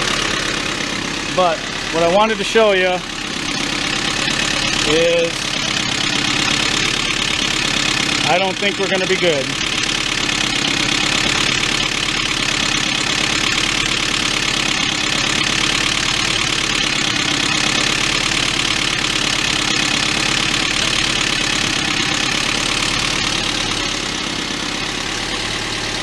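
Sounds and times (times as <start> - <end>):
fast valvetrain rattle: 0.0 - 24.3
car engine idling: 0.0 - 26.0.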